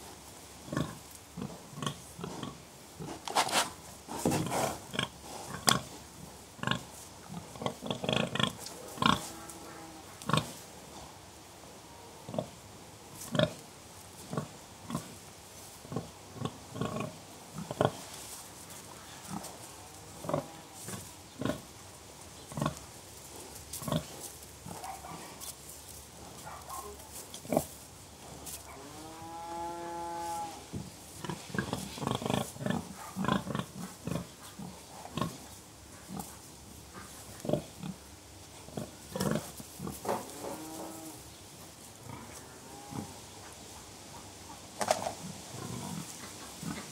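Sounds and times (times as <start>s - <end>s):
pigs grunting: 31.2s - 38.0s, 38.6s - 41.2s, 45.5s - 46.9s.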